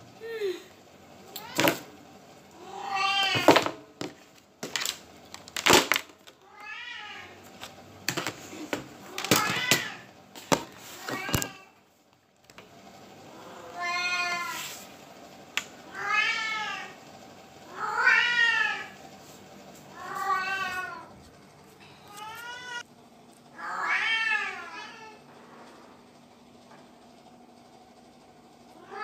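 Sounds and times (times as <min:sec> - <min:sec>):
cat meowing: 0:02.6 - 0:03.6, 0:06.4 - 0:07.4, 0:13.4 - 0:14.6, 0:15.9 - 0:17.0, 0:17.7 - 0:19.0, 0:20.0 - 0:21.1, 0:22.0 - 0:22.8, 0:23.6 - 0:25.2.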